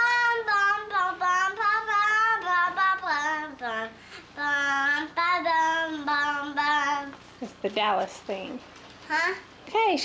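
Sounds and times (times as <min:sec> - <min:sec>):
girl singing: 0:00.0 - 0:07.2.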